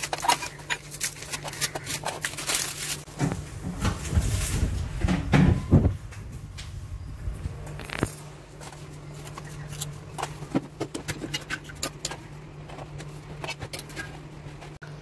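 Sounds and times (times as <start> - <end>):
biscuits clicking and clattering: 0.0 - 3.2, 7.8 - 14.8.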